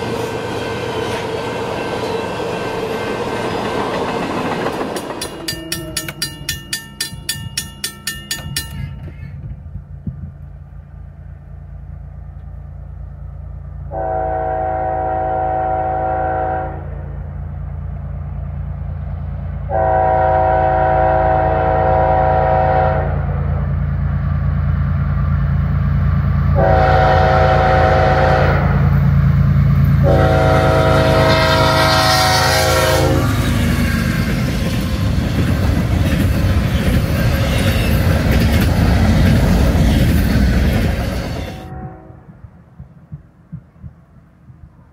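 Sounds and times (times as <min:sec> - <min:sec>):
train rushing past: 0:00.0 - 0:44.9
locomotive horn blasts: 0:13.9 - 0:17.1, 0:19.7 - 0:23.4, 0:26.6 - 0:28.9, 0:30.0 - 0:33.5, 0:41.4 - 0:42.4.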